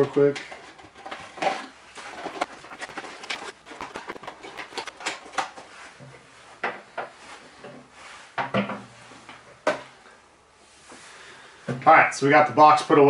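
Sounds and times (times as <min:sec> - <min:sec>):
box packing clicks and knocks: 0:01.5 - 0:05.6.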